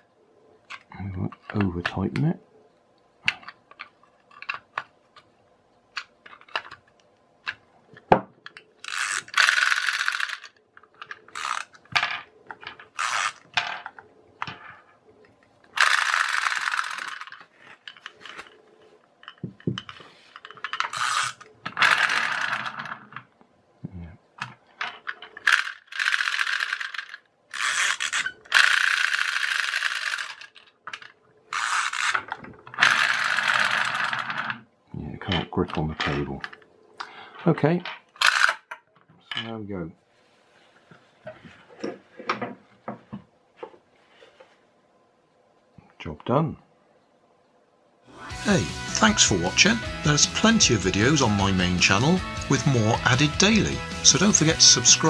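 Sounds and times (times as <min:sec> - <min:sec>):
toy gears whirring and ratcheting: 0:08.8 - 0:11.9, 0:12.8 - 0:13.5, 0:15.8 - 0:18.5, 0:20.6 - 0:23.0, 0:25.0 - 0:34.6, 0:38.2 - 0:38.7.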